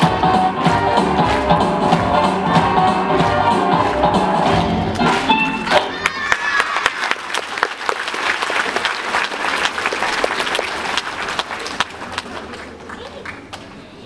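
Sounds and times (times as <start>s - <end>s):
dance music: 0.0s - 6.3s
audience applauding: 0.6s - 13.9s.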